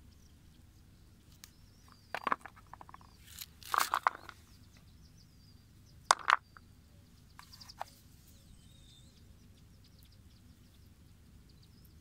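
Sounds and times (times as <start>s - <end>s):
birds chirping faintly: 0.0s - 12.0s
rocks knocking and clicking: 1.9s - 4.4s, 6.1s - 6.6s.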